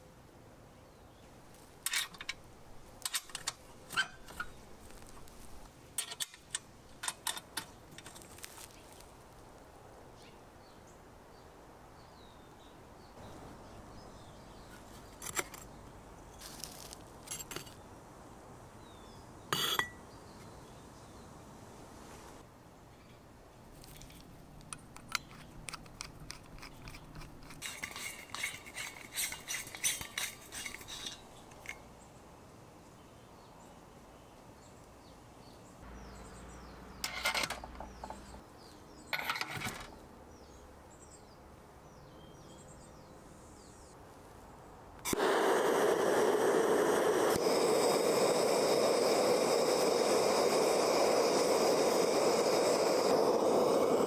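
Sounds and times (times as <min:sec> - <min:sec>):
metal fitting clinking and scraping: 0:01.8 - 0:02.4, 0:03.0 - 0:04.6, 0:06.0 - 0:08.4, 0:15.1 - 0:15.7, 0:17.2 - 0:17.8, 0:19.6 - 0:20.0, 0:23.8 - 0:31.8, 0:37.0 - 0:38.4, 0:39.1 - 0:39.9
gas torches burning with a rush: 0:27.4 - 0:31.7, 0:45.0 - 0:54.0.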